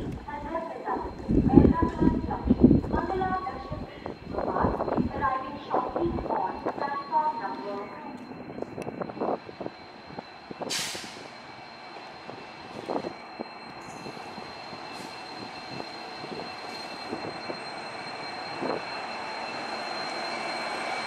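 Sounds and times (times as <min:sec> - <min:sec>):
diesel locomotive engine running: 0:00.0 - 0:21.0
air hiss: 0:10.7 - 0:11.3.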